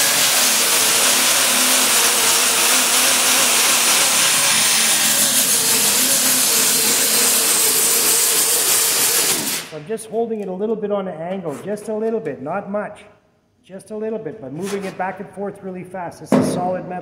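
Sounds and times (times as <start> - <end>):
orbital sander whirring: 0.0 - 9.7.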